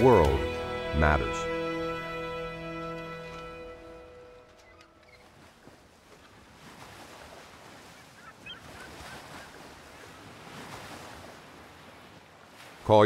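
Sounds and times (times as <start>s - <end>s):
waves washing: 0.0s - 13.0s
wind: 0.0s - 13.0s
bird calls: 4.2s - 5.5s, 7.8s - 10.3s.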